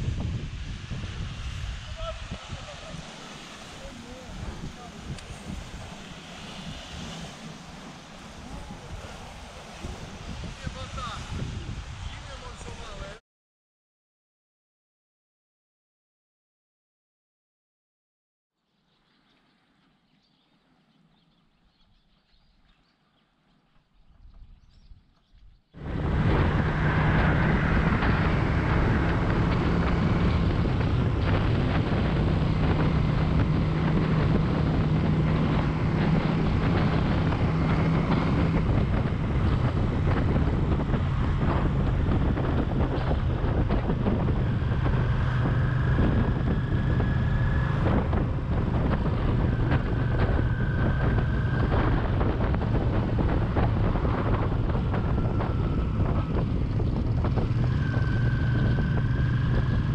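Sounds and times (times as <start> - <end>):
wind rushing over microphone: 0.0 - 13.2, 24.0 - 59.9
motorcycle engine running: 25.8 - 59.9.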